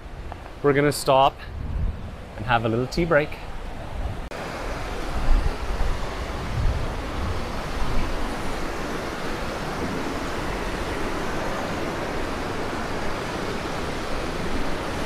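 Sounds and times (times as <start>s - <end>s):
river rushing over rocks: 3.6s - 15.0s.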